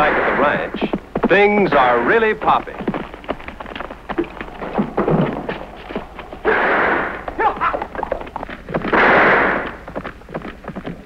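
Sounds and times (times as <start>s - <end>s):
loud gunshots: 0.0s - 0.7s, 6.4s - 7.4s, 8.9s - 9.8s
hoofbeats of galloping horses: 0.0s - 11.0s.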